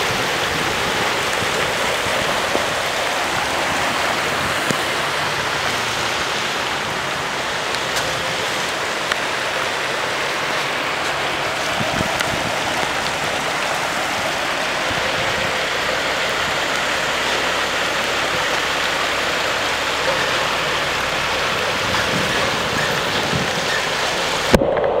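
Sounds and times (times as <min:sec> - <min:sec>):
falling rain: 0:00.0 - 0:25.0
floodwater rushing and churning: 0:00.0 - 0:25.0.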